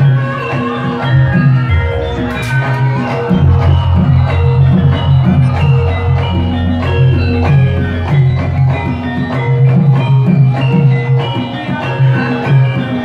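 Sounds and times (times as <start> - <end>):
metallophones ringing melody: 0.0 - 13.0
drum strokes: 1.0 - 11.7
steady low tone: 1.2 - 10.9.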